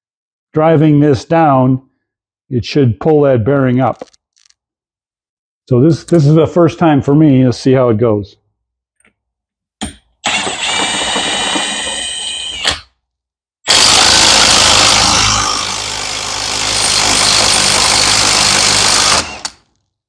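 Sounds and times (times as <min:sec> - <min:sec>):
cordless impact tool whining: 0:10.2 - 0:13.0, 0:13.7 - 0:19.8.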